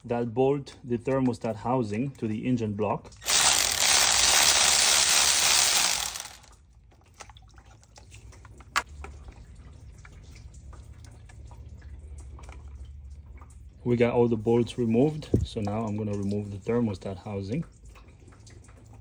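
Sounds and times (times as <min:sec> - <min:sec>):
cordless electric ratchet running: 0:03.2 - 0:06.5.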